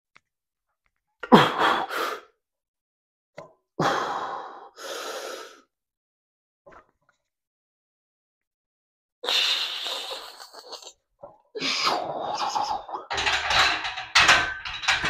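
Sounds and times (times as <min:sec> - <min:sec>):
man breathing hard: 0:03.8 - 0:05.7.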